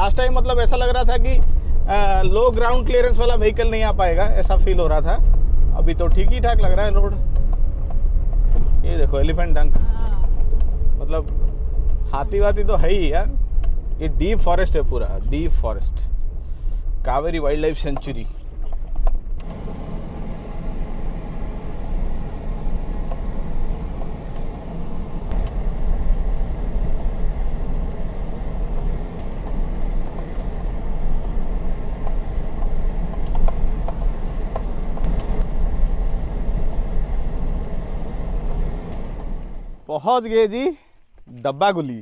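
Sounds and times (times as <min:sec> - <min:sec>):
vehicle engine and road rumble: 0:00.0 - 0:42.0.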